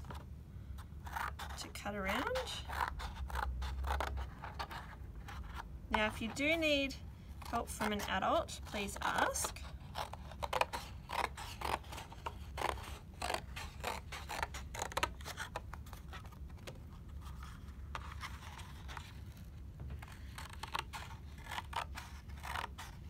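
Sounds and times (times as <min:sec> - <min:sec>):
scissors snipping cardboard: 0:07.4 - 0:15.6, 0:20.0 - 0:23.0.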